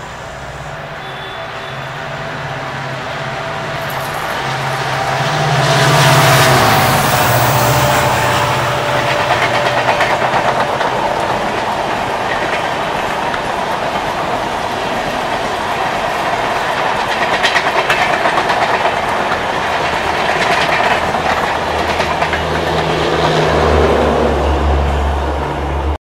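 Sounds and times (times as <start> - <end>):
train wheels clattering over rail joints: 3.7 - 23.8.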